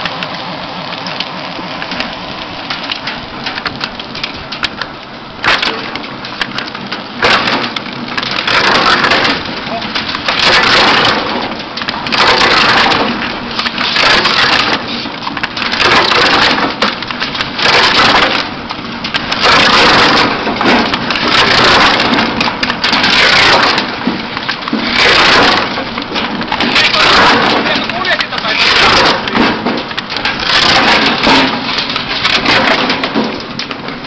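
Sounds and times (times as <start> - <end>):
wood crunching and splintering: 0.0 - 34.0.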